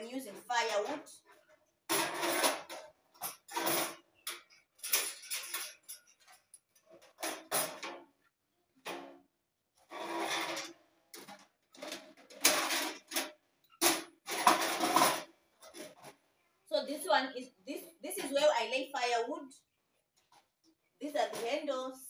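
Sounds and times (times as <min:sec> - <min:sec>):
metal stove parts clattering: 0:00.2 - 0:08.1, 0:09.9 - 0:16.2.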